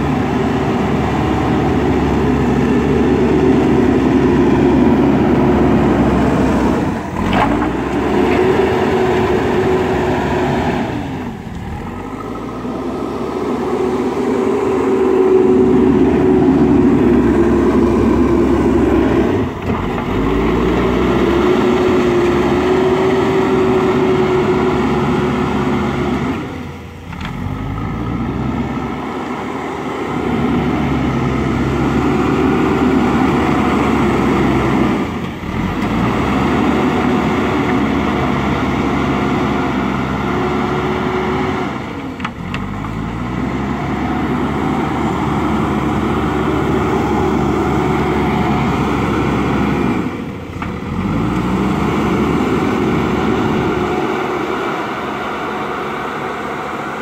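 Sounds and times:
diesel engine working hard: 0.0 - 57.0.

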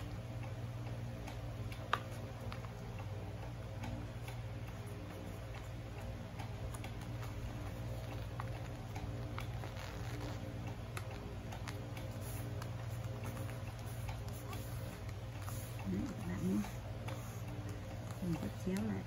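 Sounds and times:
steady low hum: 0.0 - 19.0
hands creasing paper: 6.7 - 19.0.

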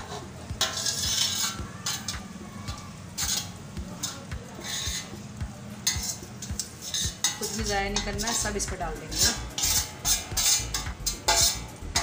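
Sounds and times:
scraping off a metal plate: 0.0 - 2.2, 3.2 - 5.2, 5.8 - 8.4, 9.1 - 12.0
metal clinking on metal: 9.1 - 12.0.

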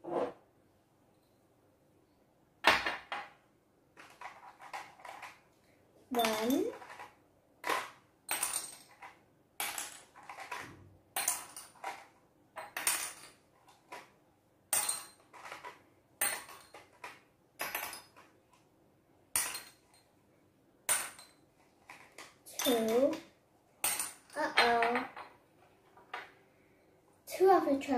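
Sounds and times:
counters clinking into glass jars: 6.1 - 7.1, 7.7 - 13.4, 14.7 - 17.0, 19.4 - 20.1, 22.5 - 23.2.

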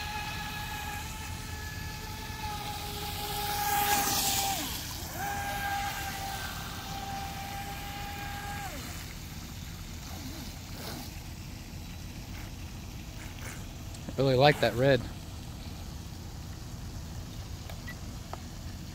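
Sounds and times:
electric motor whining: 0.0 - 9.2
water rushing: 0.0 - 18.9.

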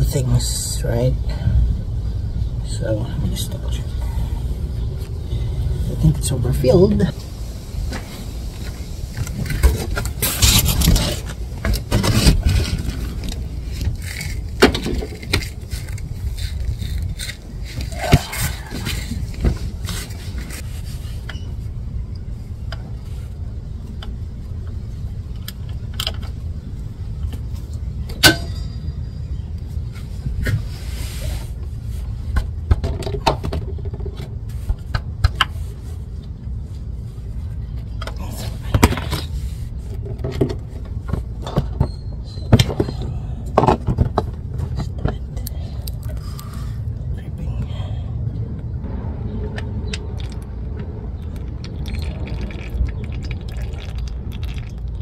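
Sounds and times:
steady low rumble: 0.0 - 32.9, 42.9 - 55.0.

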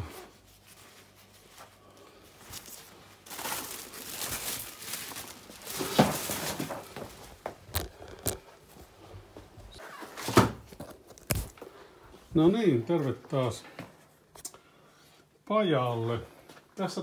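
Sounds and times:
rubbish bag crinkling: 2.2 - 8.4, 10.6 - 11.6.

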